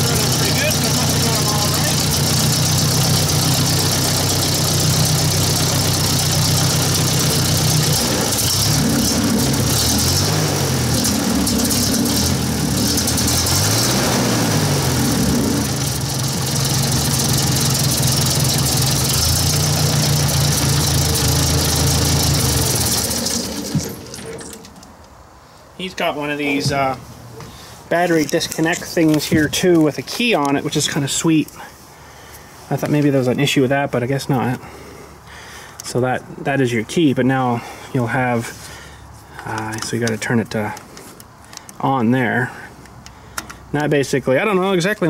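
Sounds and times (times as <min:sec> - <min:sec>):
tractor engine idling: 0:00.0 - 0:25.0.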